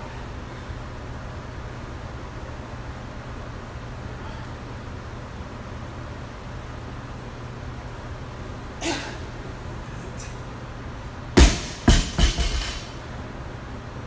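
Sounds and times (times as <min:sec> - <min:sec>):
barbell bouncing: 0:11.4 - 0:13.0
barbell thud on rubber floor: 0:11.4 - 0:13.0.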